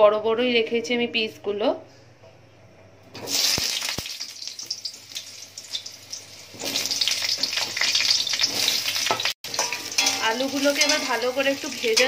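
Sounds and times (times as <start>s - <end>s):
potatoes sizzling in hot oil: 3.2s - 12.0s.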